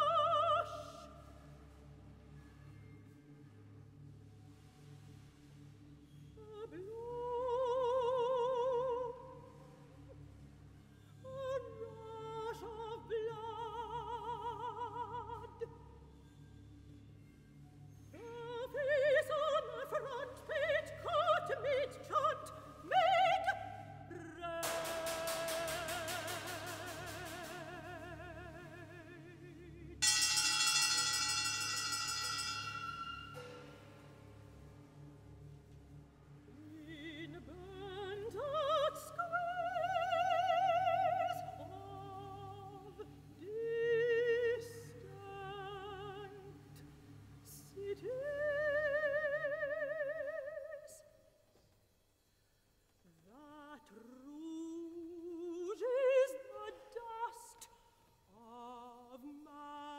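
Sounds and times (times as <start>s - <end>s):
operatic soprano singing: 0.0s - 1.6s, 6.3s - 10.2s, 11.1s - 16.1s, 18.1s - 30.0s, 36.5s - 51.2s, 53.1s - 59.9s
low sustained drone: 0.0s - 48.8s
bright metallic percussion: 24.6s - 27.9s, 30.0s - 34.2s.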